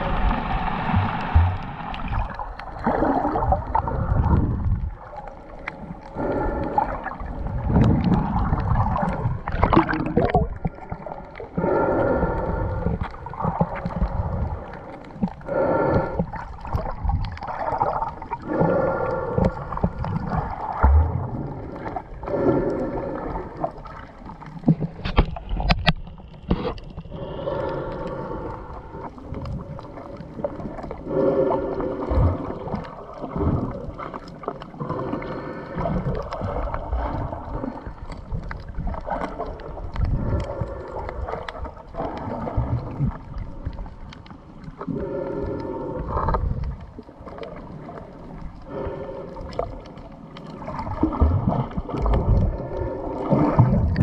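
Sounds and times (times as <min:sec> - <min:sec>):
underwater water gurgling and sloshing: 0:00.0 - 0:54.0.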